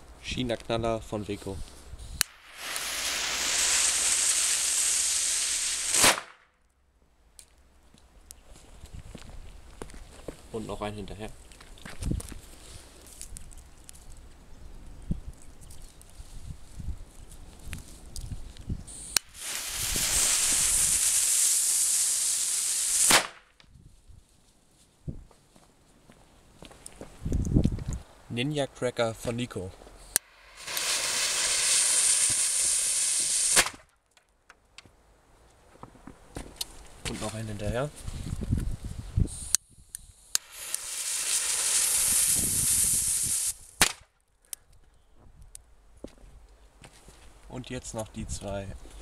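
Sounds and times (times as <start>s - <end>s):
fuse hissing: 2.1s - 6.0s, 18.9s - 23.2s, 30.2s - 33.7s, 39.3s - 43.8s
firecracker bang: 2.3s - 6.4s, 19.2s - 23.5s, 30.2s - 33.8s, 40.4s - 44.0s.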